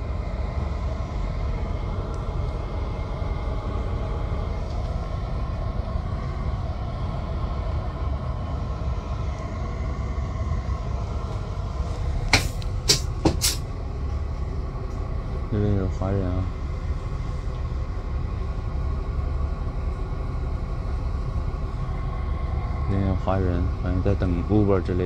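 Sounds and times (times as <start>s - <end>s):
coach engine and road noise: 0.0s - 25.0s
short sharp hisses: 13.4s - 13.6s.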